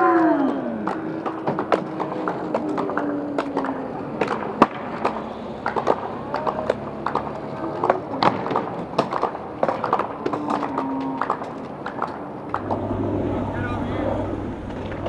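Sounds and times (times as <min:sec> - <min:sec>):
pitched tone: 0:12.6 - 0:15.0.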